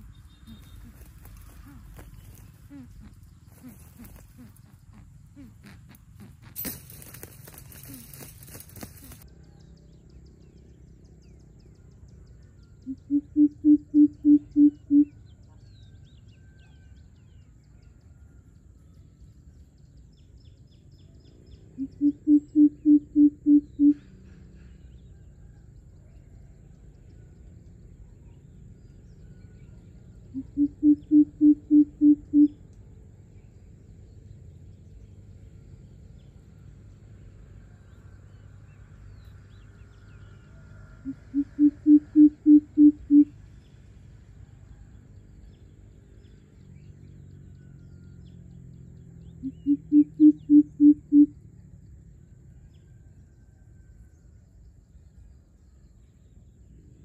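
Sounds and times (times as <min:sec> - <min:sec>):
bird deep hoots: 0:12.8 - 0:15.2, 0:21.8 - 0:24.1, 0:30.3 - 0:32.6, 0:41.0 - 0:43.3, 0:49.4 - 0:51.4.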